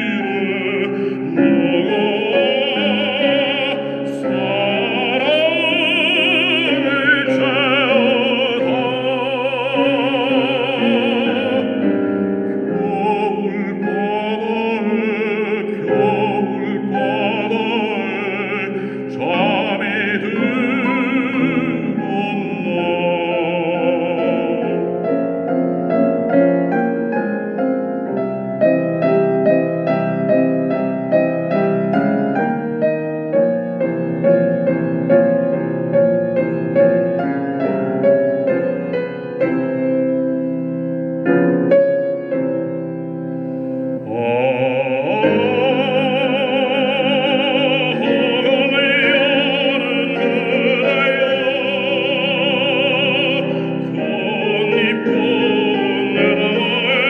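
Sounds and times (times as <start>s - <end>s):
man singing with vibrato: 0.0s - 27.8s, 43.4s - 57.0s
piano accompaniment: 0.0s - 57.0s.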